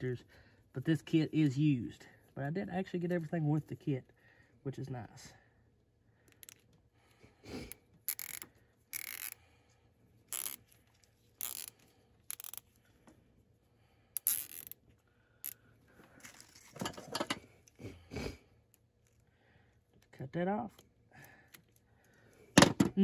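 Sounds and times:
wiring rasping while bound: 7.6 - 9.4, 10.2 - 12.8.

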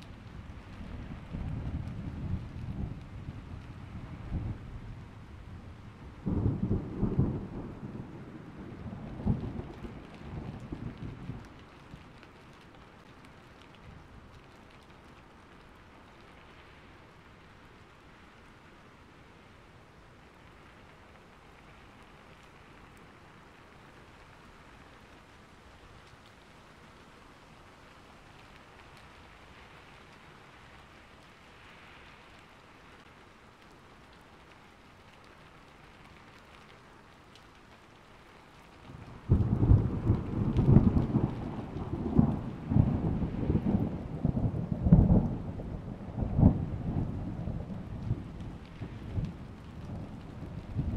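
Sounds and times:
faint steady rain: 0.0 - 50.9
thunder rumbling: 0.1 - 12.1, 38.8 - 50.9.

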